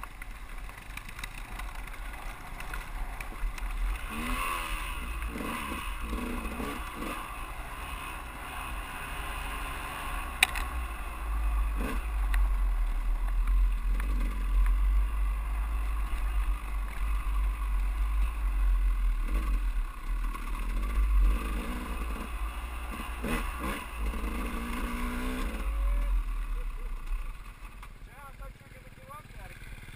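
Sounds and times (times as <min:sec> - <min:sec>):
dirt bike engine: 0:00.0 - 0:29.9
sharp click: 0:10.4 - 0:10.7.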